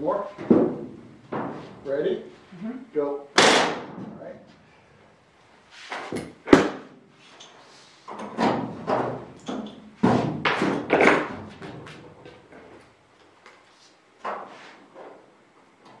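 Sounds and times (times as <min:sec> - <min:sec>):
tools clattering and rattling: 0:07.4 - 0:15.2.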